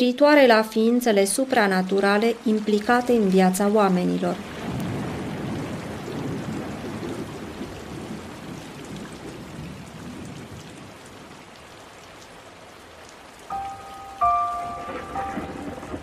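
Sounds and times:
steady rain: 0.0 - 16.0
thunder rumble: 4.4 - 11.4, 13.5 - 16.0
held musical notes: 13.5 - 16.0.

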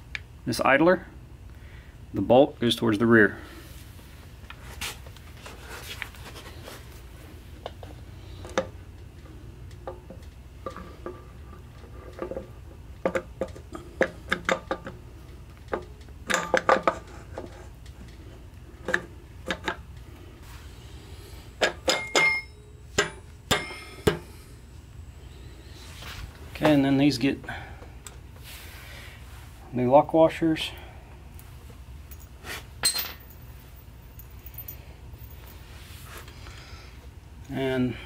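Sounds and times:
steady low hum: 0.0 - 38.0
metal parts clinking: 32.1 - 33.4.

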